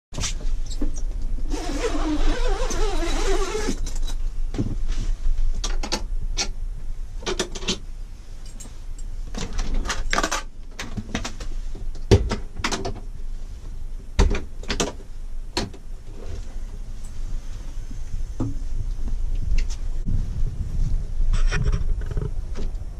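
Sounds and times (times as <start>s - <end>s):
dense rustling: 0.2s - 5.6s, 15.0s - 22.9s
latches clicking and rattling: 9.4s - 11.4s.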